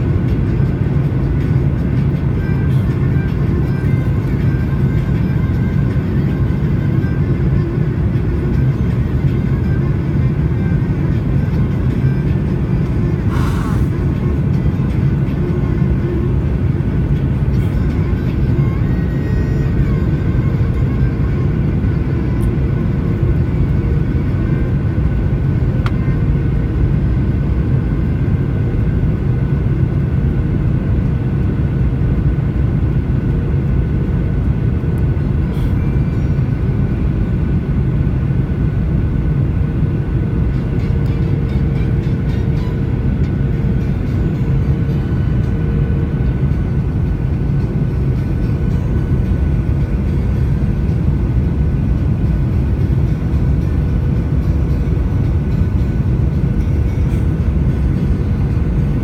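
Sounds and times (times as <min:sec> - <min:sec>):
faint steady whine: 0:00.0 - 0:59.0
jet engine drone in cabin: 0:00.0 - 0:59.0
rushing air: 0:13.1 - 0:14.4.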